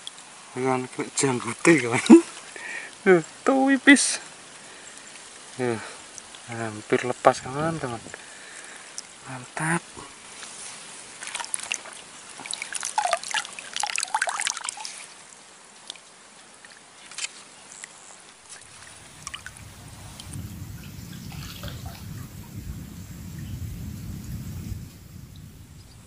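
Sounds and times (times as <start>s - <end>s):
water splashing and dripping: 11.1s - 15.2s, 18.4s - 26.0s
steady low rumble: 18.4s - 26.0s.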